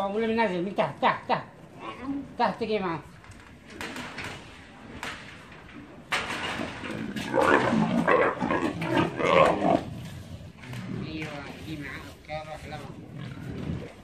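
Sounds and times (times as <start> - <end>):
leopard growling: 6.4 - 14.0.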